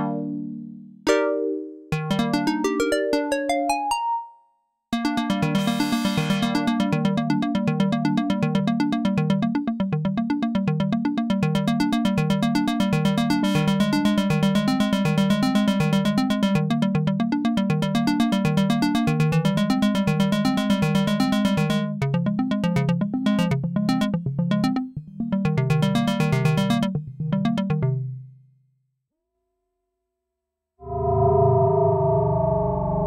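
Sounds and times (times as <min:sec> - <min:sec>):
synthesizer pulsing notes: 0:00.0 - 0:04.0, 0:05.0 - 0:28.2.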